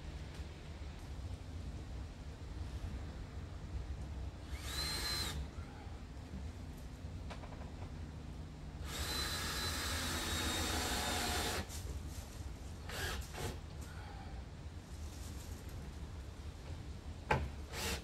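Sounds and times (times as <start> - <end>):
cordless drill driving screws: 4.5 - 5.4, 8.8 - 11.7, 12.9 - 13.6, 17.7 - 18.0.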